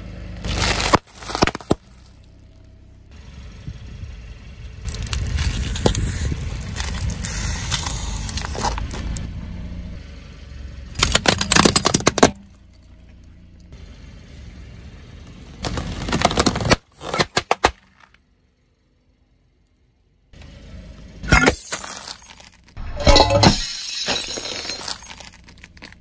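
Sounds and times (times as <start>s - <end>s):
tyre crushing plastic jars: 0.4s - 1.8s, 11.0s - 12.5s, 15.6s - 18.2s
plastic balls cracking: 0.4s - 2.1s, 11.0s - 12.6s, 15.6s - 18.2s
balloons crackling under tyre: 0.4s - 2.6s, 4.8s - 9.2s, 15.3s - 18.2s
low rumble: 1.9s - 11.1s.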